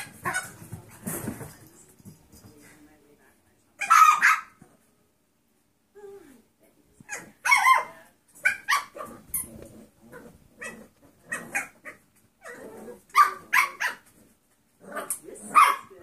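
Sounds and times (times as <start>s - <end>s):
puppies barking: 3.8s - 4.6s, 7.1s - 9.5s, 10.6s - 14.1s.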